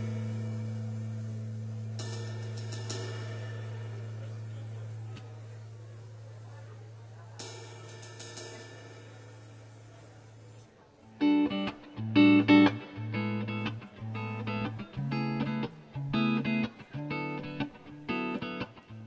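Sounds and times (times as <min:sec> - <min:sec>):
rhythmic guitar chords: 0:00.0 - 0:09.8, 0:11.0 - 0:19.0
bass notes: 0:00.0 - 0:10.5, 0:11.2 - 0:19.0
cymbal wash: 0:00.0 - 0:12.8.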